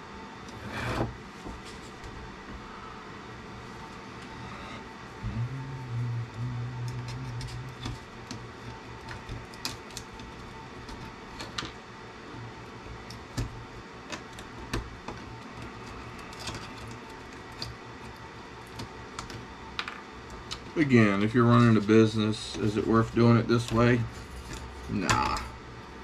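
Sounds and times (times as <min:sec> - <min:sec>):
low drone: 0:04.2 - 0:08.2.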